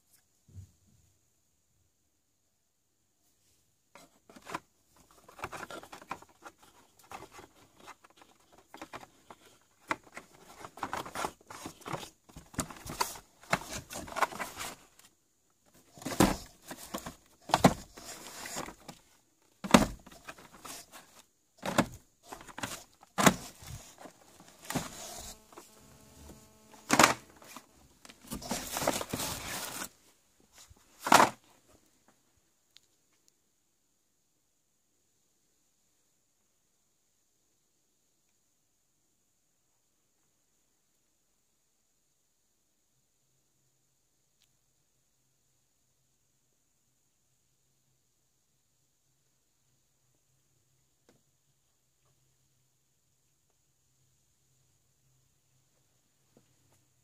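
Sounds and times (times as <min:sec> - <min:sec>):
cardboard boxes and packaging rustling: 0:04.0 - 0:31.8.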